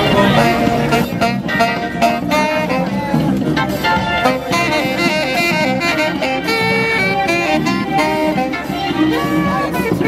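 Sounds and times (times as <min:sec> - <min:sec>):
tenor saxophone jazz melody: 0:00.0 - 0:10.0.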